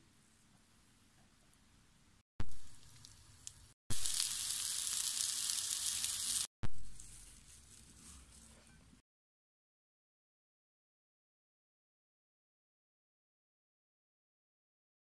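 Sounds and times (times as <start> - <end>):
meatballs sizzling in a pan: 2.4 - 7.3.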